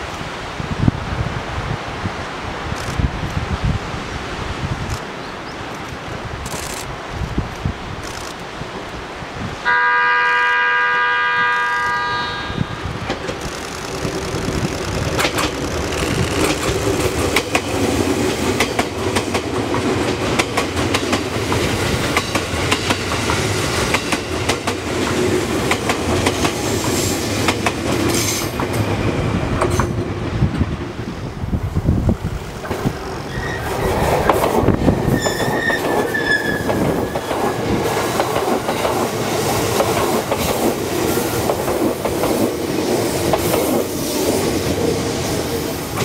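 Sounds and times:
train rumbling past: 7.9 - 46.0
train horn blast: 9.6 - 13.0
wheels clacking over rail joints: 12.9 - 31.0, 32.2 - 45.0.

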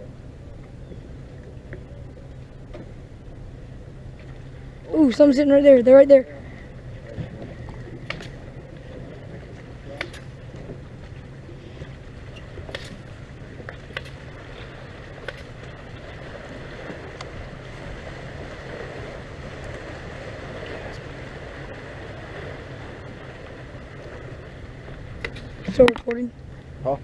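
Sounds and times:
steady low hum: 0.0 - 27.0
water lapping against hull: 0.0 - 27.0.

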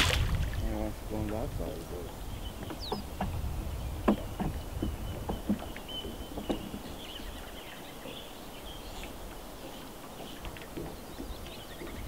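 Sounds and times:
water knocking against boat hull: 0.0 - 1.6, 2.4 - 7.1, 9.0 - 12.0.

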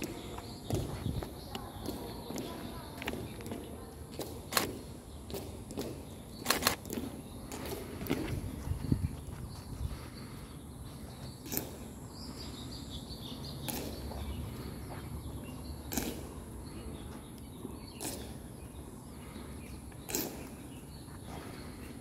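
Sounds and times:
boots marching on stone: 0.0 - 10.3.

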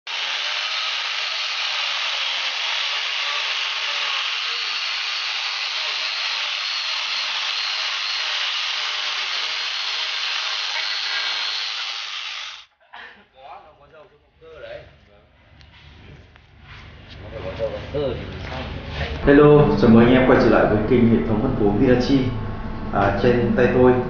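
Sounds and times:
chain rasping through wood: 0.1 - 12.6
grinder motor whine: 0.1 - 12.6.

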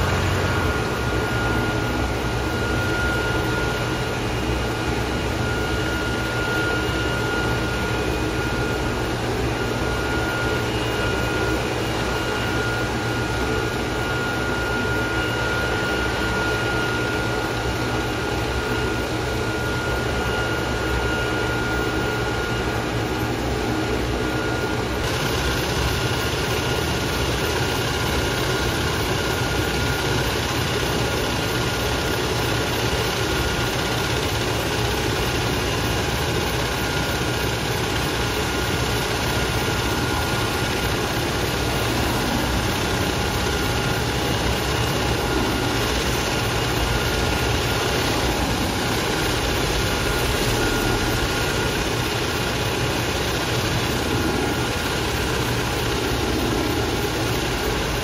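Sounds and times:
helicopter rotor and engine whine: 0.0 - 58.0.

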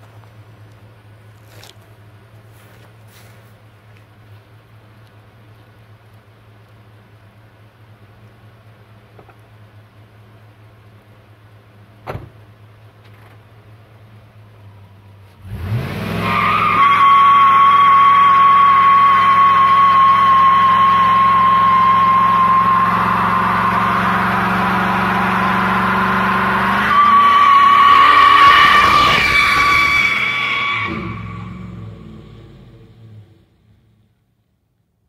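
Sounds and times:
truck engine revving: 15.4 - 33.5
tyres squealing: 16.2 - 31.8.

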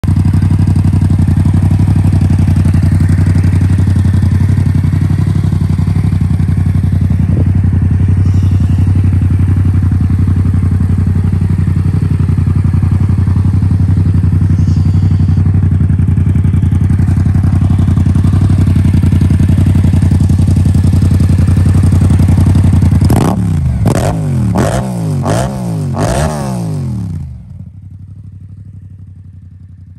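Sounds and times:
motorcycle engine revving: 0.0 - 29.3
motorcycle engine idling: 0.0 - 29.9.

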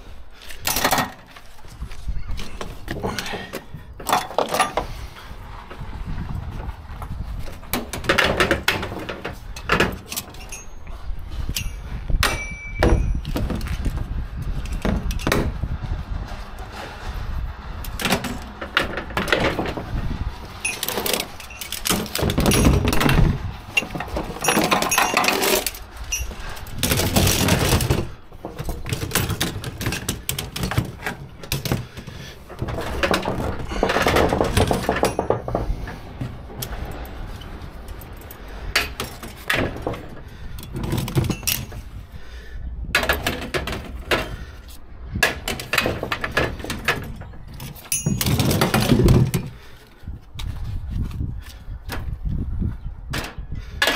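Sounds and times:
metal hooks clinking: 10.0 - 10.9, 20.6 - 23.1, 23.8 - 27.3, 47.1 - 48.7.

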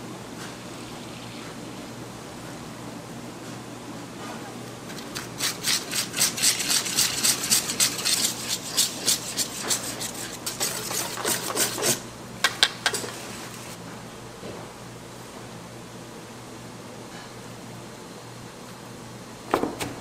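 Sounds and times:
whisk beating batter in metal bowl: 5.0 - 12.0.

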